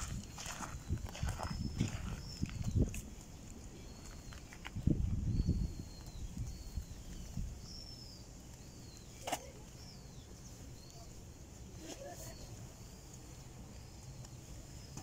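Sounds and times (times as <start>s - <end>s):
footsteps on stone: 0.0s - 4.8s
bird chirps: 0.4s - 15.0s.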